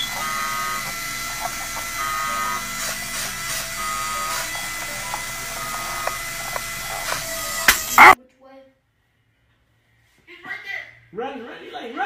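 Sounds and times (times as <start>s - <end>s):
high motor whine: 0.0s - 8.2s
small electric motors buzzing: 0.0s - 8.2s.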